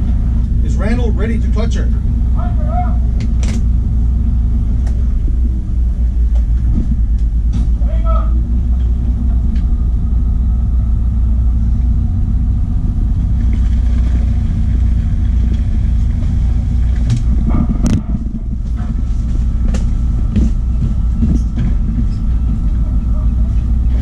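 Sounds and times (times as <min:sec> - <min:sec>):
boat engine rumbling: 0:00.0 - 0:24.0
sharp clicks and knocks: 0:03.2 - 0:03.7.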